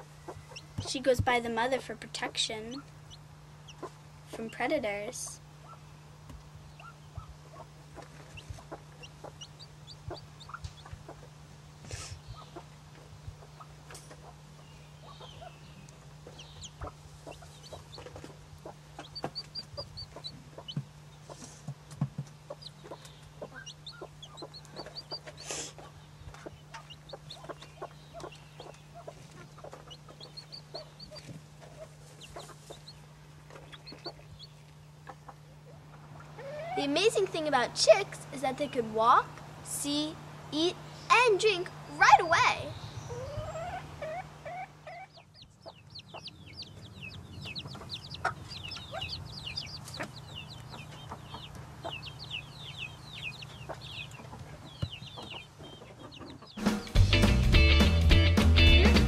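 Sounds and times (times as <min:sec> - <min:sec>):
hen clucking softly: 0:00.0 - 0:01.0, 0:06.7 - 0:11.4, 0:16.2 - 0:21.7, 0:22.4 - 0:36.9, 0:43.1 - 0:56.6
chick peeping: 0:00.0 - 0:39.1, 0:42.6 - 0:57.1.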